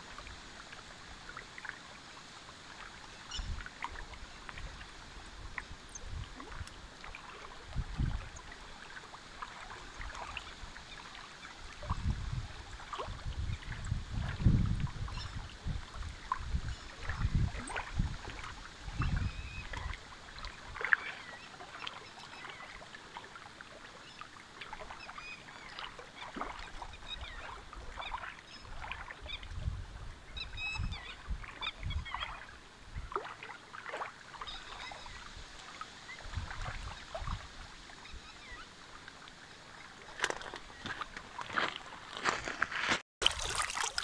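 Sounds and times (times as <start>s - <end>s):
wind gusts on microphone: 4.5s - 6.8s, 7.6s - 8.4s, 11.8s - 20.0s, 29.3s - 33.2s, 36.1s - 37.8s
small waves lapping on stones: 33.2s - 44.0s.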